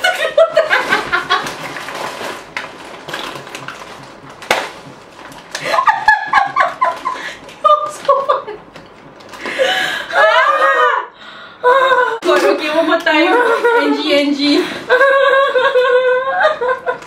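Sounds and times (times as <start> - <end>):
women laughing hard: 0.0 - 1.6, 5.6 - 8.7, 9.4 - 12.2, 14.8 - 17.0.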